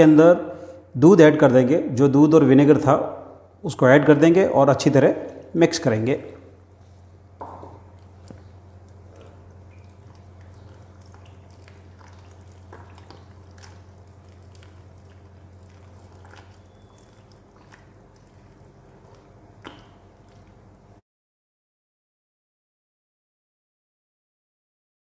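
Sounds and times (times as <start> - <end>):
steady low hum: 0.0 - 21.0
whisk stirring wet batter: 7.9 - 20.9.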